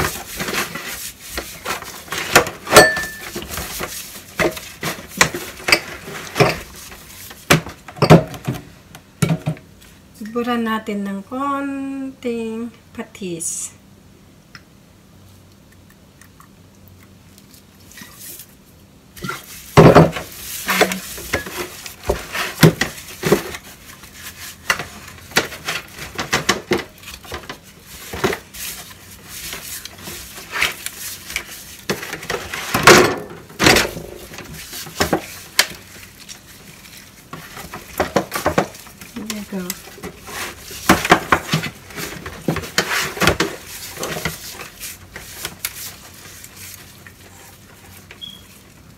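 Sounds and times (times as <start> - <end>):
foil pan crinkling and knocking: 0.0 - 8.6, 19.2 - 48.9.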